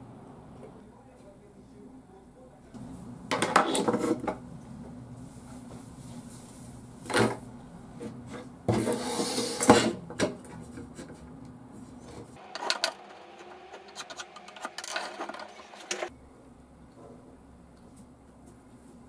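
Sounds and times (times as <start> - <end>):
rubbing and scraping on boards: 12.0 - 16.1.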